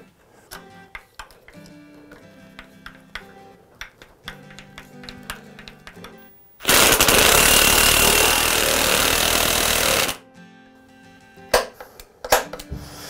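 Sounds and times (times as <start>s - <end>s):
impact driver rattling: 6.6s - 10.2s.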